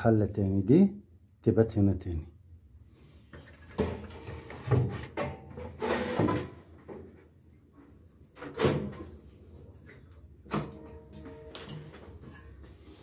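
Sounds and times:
washing machine metal parts clattering: 3.4s - 6.6s, 10.5s - 13.0s.

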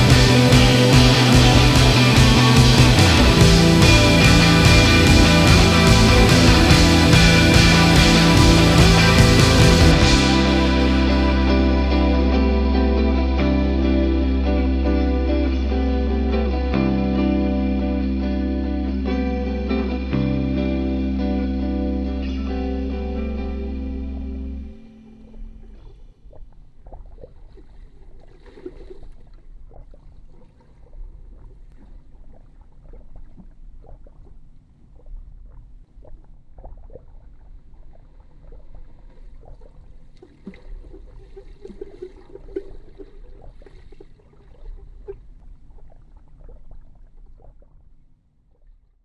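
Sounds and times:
muffled underwater rumble: 0.0s - 49.0s
water gurgles and splashes: 24.0s - 48.9s.

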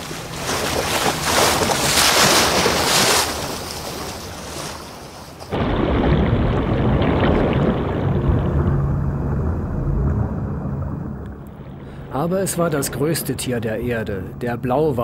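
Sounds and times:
sea water rushing and splashing: 0.0s - 13.6s
low underwater rumble: 5.5s - 14.4s.

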